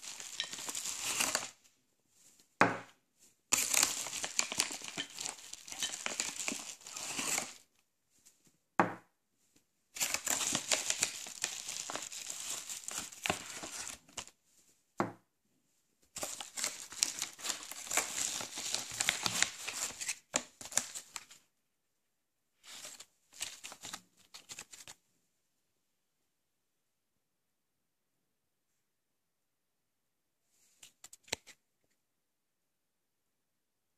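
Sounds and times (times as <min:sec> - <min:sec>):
plastic packaging crinkling: 0:00.0 - 0:01.6, 0:03.5 - 0:07.6, 0:10.0 - 0:14.3, 0:16.2 - 0:21.4, 0:22.6 - 0:25.0.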